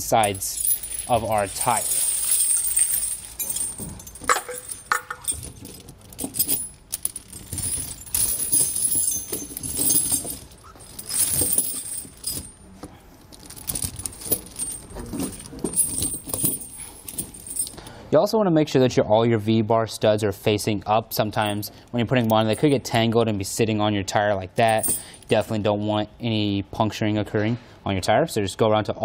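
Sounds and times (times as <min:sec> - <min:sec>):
tire chains clinking and rattling: 0:00.0 - 0:17.9, 0:21.4 - 0:23.0, 0:24.6 - 0:25.5.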